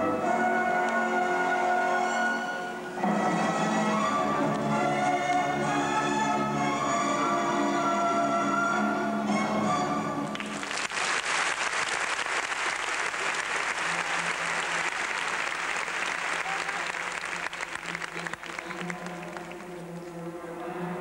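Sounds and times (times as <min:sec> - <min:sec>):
orchestral music: 0:00.0 - 0:10.7
crowd applauding: 0:10.3 - 0:20.1.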